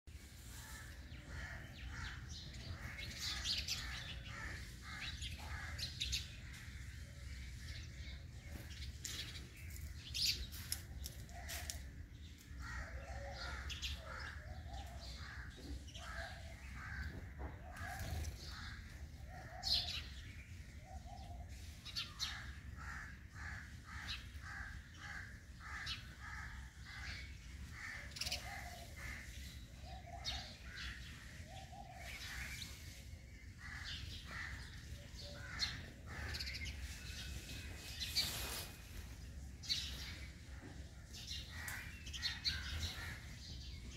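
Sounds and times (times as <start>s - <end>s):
birds chirping and calling: 0.1s - 43.9s.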